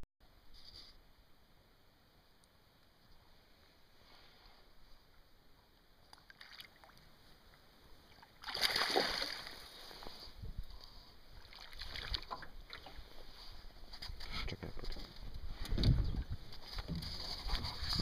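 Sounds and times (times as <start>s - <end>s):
water sloshing: 6.1s - 7.1s, 8.1s - 10.1s, 11.3s - 13.6s
fish thrashing and splashing: 8.4s - 9.7s.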